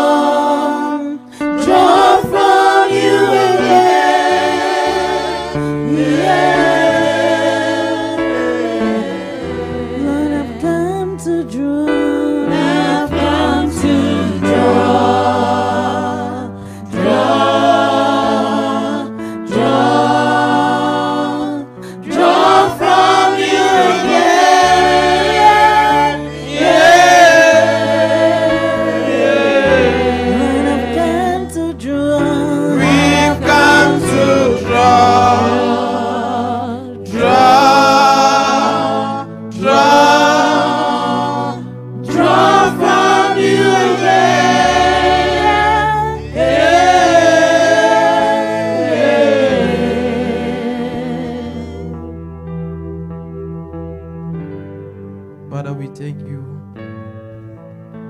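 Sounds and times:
congregation singing gospel song: 0.0 - 52.2
person singing through microphone: 29.6 - 41.6.

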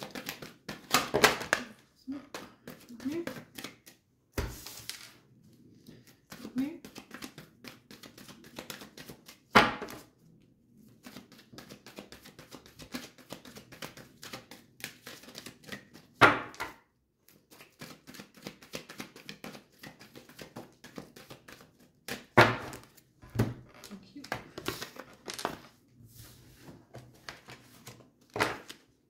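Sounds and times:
cards being shuffled: 5.8 - 10.1, 10.9 - 16.1, 17.3 - 28.9.

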